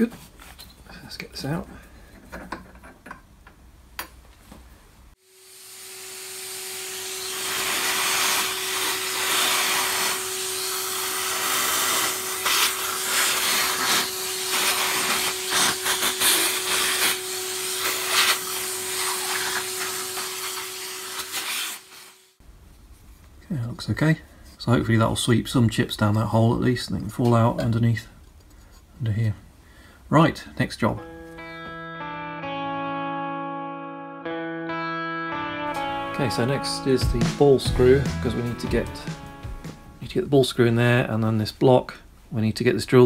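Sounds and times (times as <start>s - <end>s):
vacuum cleaner motor humming: 5.2s - 22.3s.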